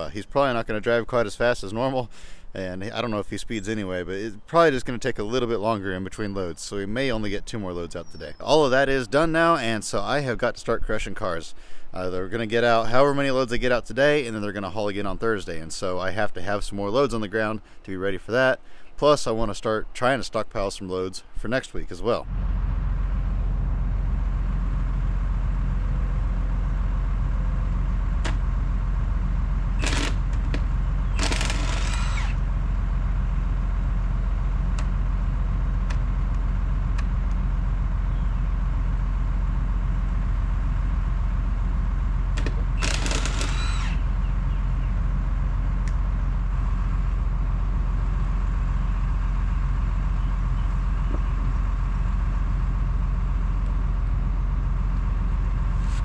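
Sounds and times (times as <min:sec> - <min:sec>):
engine idling: 0:22.2 - 0:56.0
impact wrench rattling: 0:29.8 - 0:32.4, 0:42.4 - 0:44.0.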